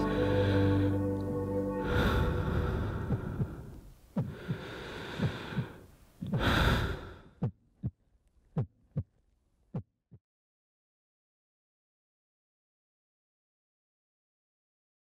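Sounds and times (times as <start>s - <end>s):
person breathing: 0.0s - 7.5s
heartbeat thumps: 2.8s - 6.6s, 7.4s - 9.9s.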